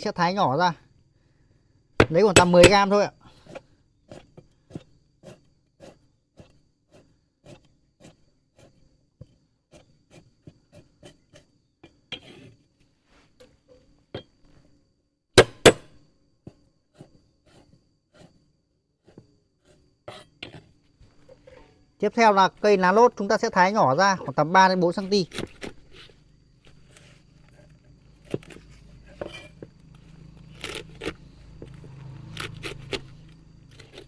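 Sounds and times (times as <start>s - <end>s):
knife chopping on wooden board: 15.4s - 15.9s
loud knocks on chopping block: 15.4s - 15.9s.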